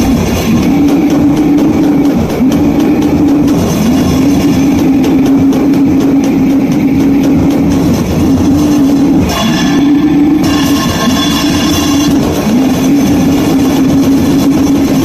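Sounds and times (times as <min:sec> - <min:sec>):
distorted guitar drone: 0:00.0 - 0:15.0
drums: 0:00.0 - 0:15.0
higher ringing tones: 0:08.7 - 0:13.1.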